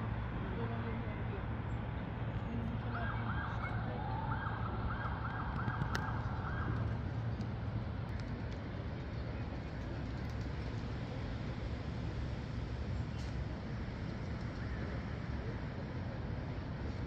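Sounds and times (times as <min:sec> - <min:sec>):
distant siren wailing: 0:02.9 - 0:07.1.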